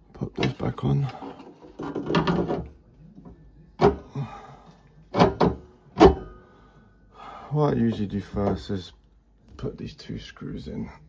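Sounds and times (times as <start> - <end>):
metal clunks and knocks: 1.4 - 2.8, 3.8 - 4.2, 5.1 - 6.4.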